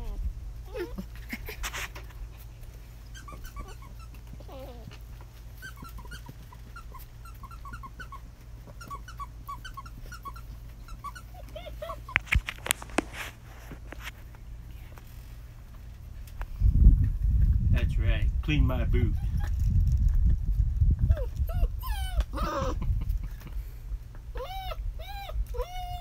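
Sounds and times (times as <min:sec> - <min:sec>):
puppies yipping and whining: 0:00.0 - 0:13.4, 0:21.0 - 0:23.5, 0:24.2 - 0:26.0.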